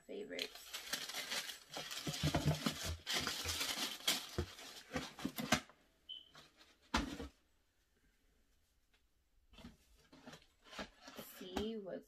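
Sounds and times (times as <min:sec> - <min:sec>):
cardboard box and paper rustling: 0:00.4 - 0:05.6, 0:09.6 - 0:11.8.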